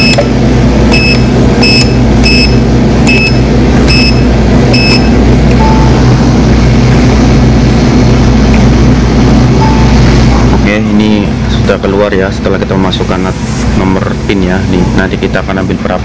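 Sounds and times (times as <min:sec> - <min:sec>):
keypad beeps: 0:00.0 - 0:00.3, 0:00.9 - 0:06.0, 0:09.6 - 0:10.0
steady low hum: 0:00.0 - 0:16.0.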